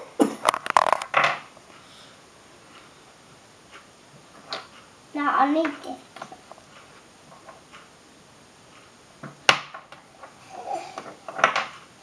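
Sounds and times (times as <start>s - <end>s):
person coughing: 0.0s - 0.4s.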